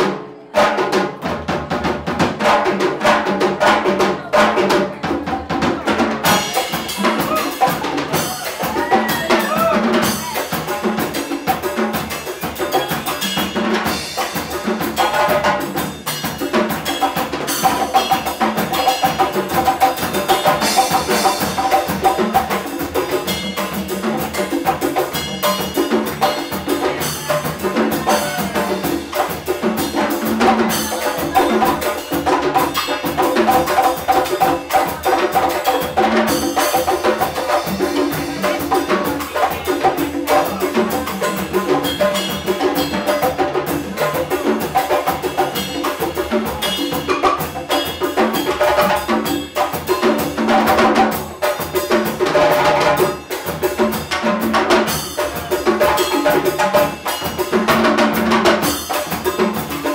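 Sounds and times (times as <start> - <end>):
percussion trio playing groove: 0.0 - 59.9.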